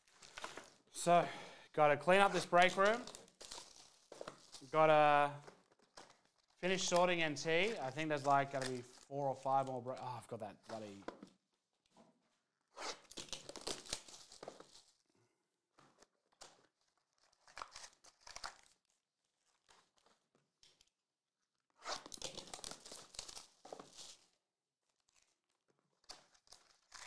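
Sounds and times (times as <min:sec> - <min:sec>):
wrapping torn open and crinkled: 0:00.0 - 0:00.9, 0:02.3 - 0:09.7, 0:12.9 - 0:15.0, 0:15.8 - 0:20.9, 0:21.9 - 0:27.0.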